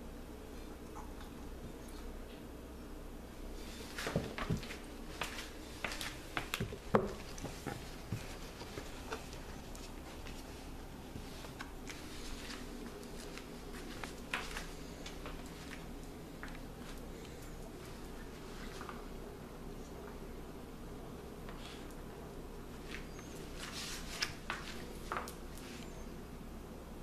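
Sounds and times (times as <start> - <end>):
faint steady hum: 0.0 - 27.0
puppy rustling in fabric bed: 3.6 - 16.0, 22.8 - 25.9
paws clicking on tiled floor: 3.9 - 19.1, 22.8 - 26.0.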